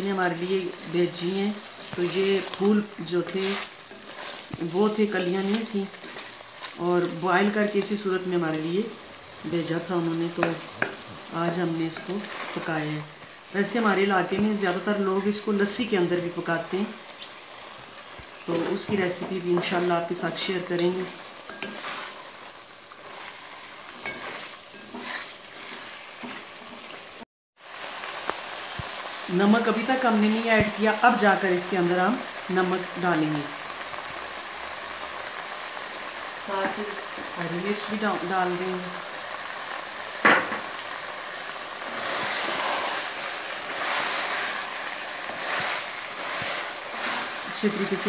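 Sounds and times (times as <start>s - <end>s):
curry sizzling in a pot: 0.0s - 48.0s
wooden spoon scraping pot: 1.8s - 4.6s, 20.8s - 27.0s, 41.8s - 48.0s.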